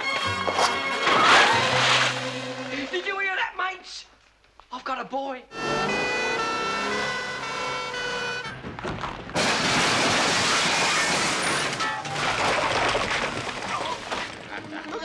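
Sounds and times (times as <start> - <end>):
two-tone ambulance siren: 5.5 - 8.8
loud crash through doors: 5.7 - 14.5
debris clattering: 7.1 - 15.0.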